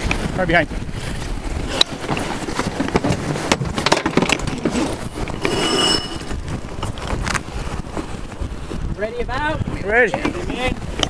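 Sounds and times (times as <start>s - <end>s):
line squealing on winch drum: 5.3s - 6.4s.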